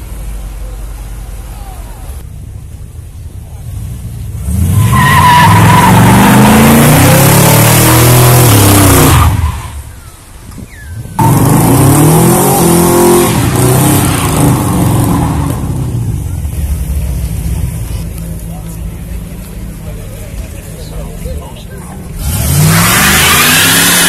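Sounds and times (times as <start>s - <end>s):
car engine revving: 0.0s - 9.8s, 11.1s - 24.0s
tyres squealing on asphalt: 4.4s - 16.7s, 17.8s - 24.0s.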